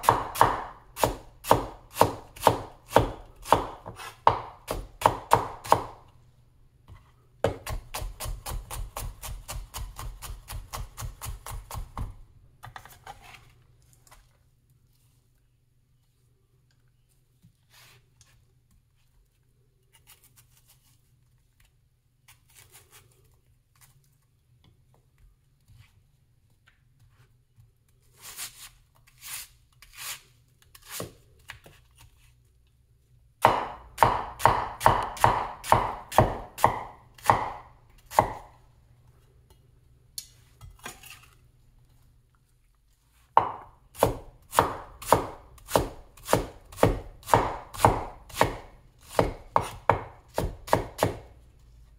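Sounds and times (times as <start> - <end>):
cleaver chopping on wooden board: 0.0 - 6.0, 33.4 - 38.5, 43.4 - 51.3
knife slicing onion: 0.0 - 6.1, 6.9 - 13.5, 22.2 - 23.2, 27.9 - 32.4, 33.4 - 38.6, 43.3 - 51.4.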